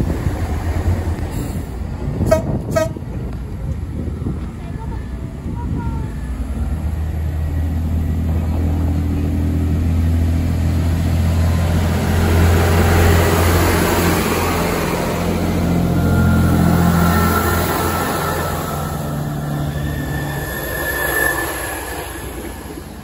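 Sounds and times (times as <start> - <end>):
diesel train engine drone: 0.0 - 23.0
train wheels rumbling on rails: 0.0 - 23.0
thin high squeal: 16.0 - 22.7.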